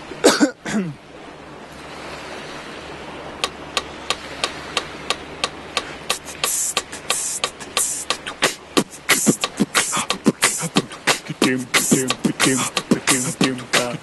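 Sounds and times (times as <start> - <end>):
steady hiss: 5.8 - 14.0
short vocal sound falling in pitch: 6.1 - 14.0.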